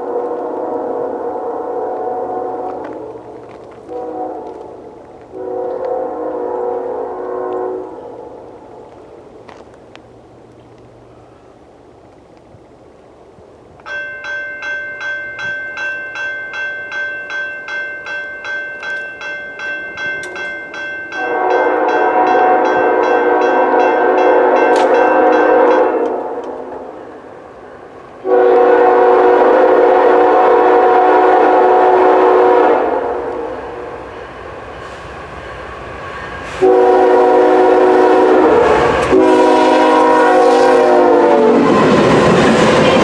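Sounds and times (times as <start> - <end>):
locomotive air horn blasts: 0.0 - 3.2, 3.8 - 8.4, 21.1 - 27.0, 28.2 - 33.5, 36.5 - 41.8
bell ringing: 13.9 - 26.0.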